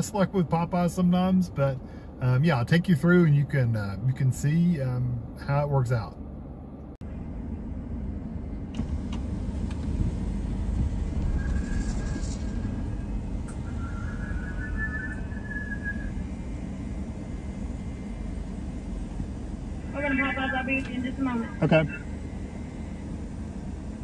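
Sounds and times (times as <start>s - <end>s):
car engine and tyres rumbling: 0.0s - 24.0s.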